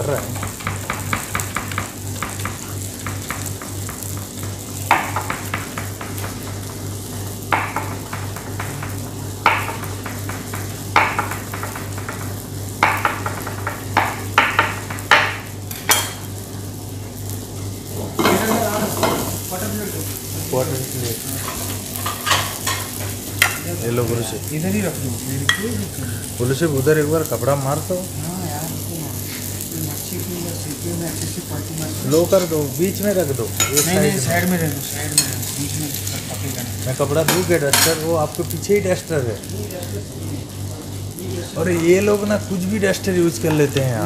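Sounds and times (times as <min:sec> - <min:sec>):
food sizzling in a pan: 0:00.0 - 0:44.0
knife chopping on cutting board: 0:00.4 - 0:04.2, 0:04.9 - 0:06.8, 0:07.5 - 0:12.2.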